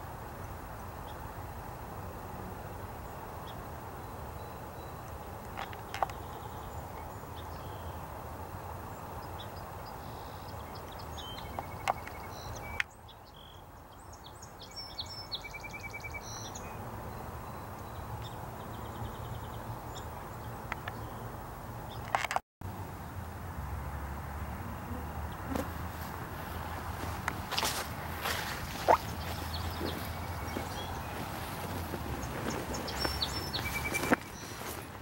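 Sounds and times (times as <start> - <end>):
small birds chirping: 4.3 - 8.1, 8.9 - 22.2, 26.4 - 35.0.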